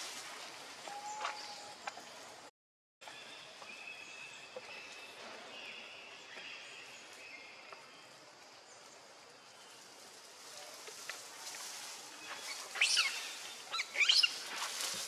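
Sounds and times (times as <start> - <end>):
steady forest hiss: 0.0 - 15.0
short high chirping calls: 12.5 - 14.4.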